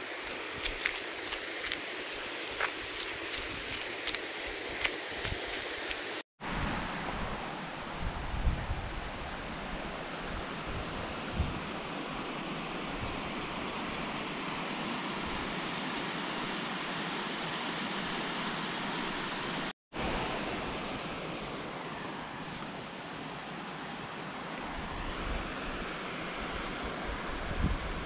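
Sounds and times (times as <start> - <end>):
water rushing over weir: 0.0 - 6.2
wind bumps on microphone: 8.0 - 9.2, 10.3 - 11.7.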